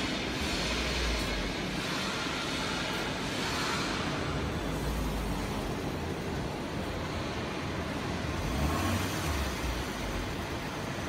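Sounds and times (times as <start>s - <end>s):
machinery rumble and hiss: 0.0s - 11.0s.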